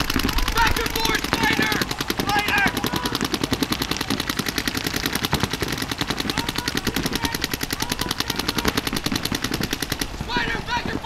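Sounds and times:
paintball markers rapid firing: 0.0 - 11.0.

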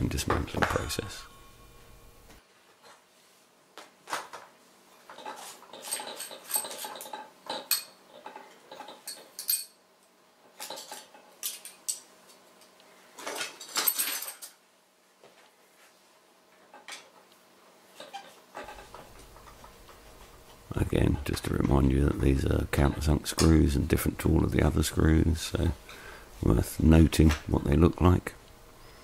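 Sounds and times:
metal parts clinking on hard surface: 5.1 - 9.8, 10.6 - 12.1, 13.2 - 14.6.

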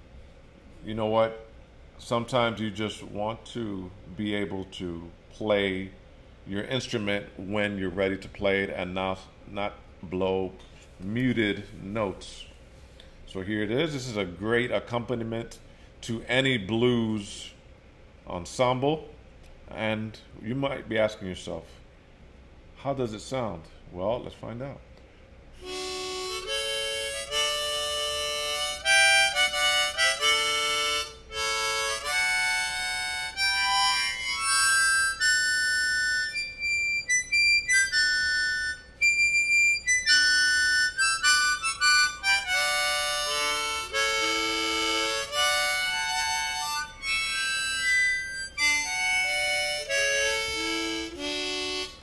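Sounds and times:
harmonica playing: 25.6 - 52.0.

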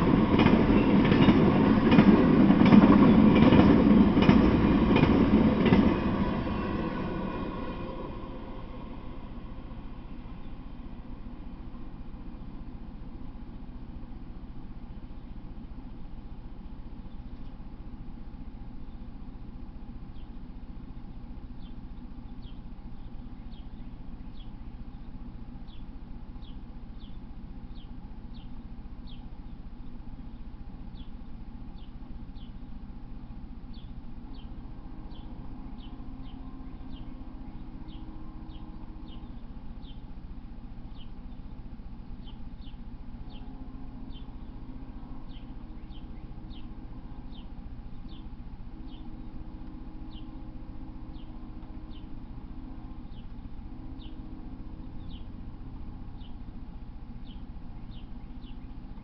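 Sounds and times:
steady low hum: 0.0 - 59.0
bird chirping: 16.5 - 17.7, 18.4 - 32.8, 33.6 - 59.0.

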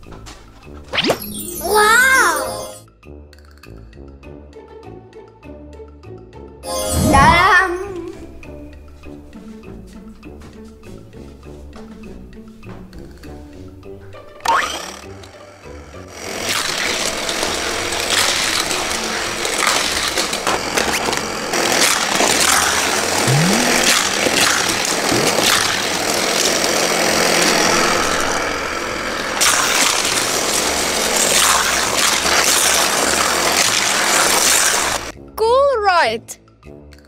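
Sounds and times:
toy track booster whirring: 14.3 - 35.1
toy cars clattering on track: 14.4 - 23.2, 23.8 - 35.1
short rising tone: 23.2 - 24.2.

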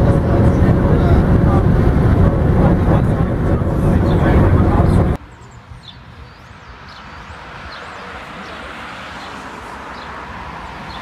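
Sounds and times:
bus diesel engine: 0.0 - 5.4
road traffic: 0.0 - 11.0
small birds chirping: 3.9 - 10.2.

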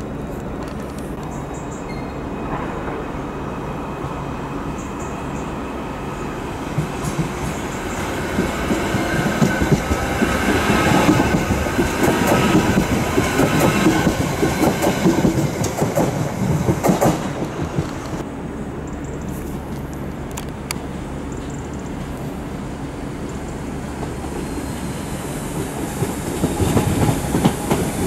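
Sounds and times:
train wheels clattering: 6.6 - 18.2, 23.4 - 28.0.

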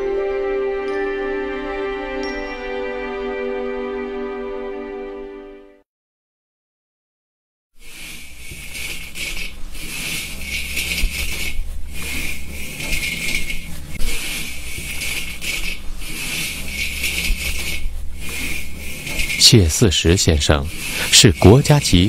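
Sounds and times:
tea leaves scraping in hot wok: 7.8 - 22.0
steady low hum: 8.2 - 22.0.

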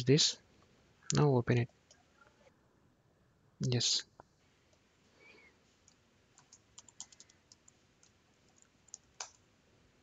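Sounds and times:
keyboard keystrokes: 6.4 - 9.4.

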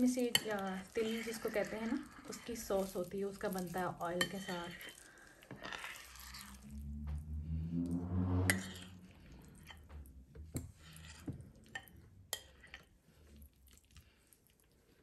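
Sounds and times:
wet squelches of spoon scooping: 0.2 - 6.8, 10.8 - 15.0.

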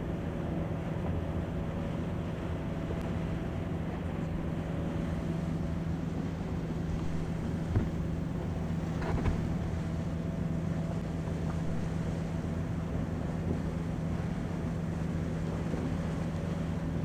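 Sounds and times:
low engine hum: 0.0 - 17.0
faint knocks: 7.0 - 8.2.

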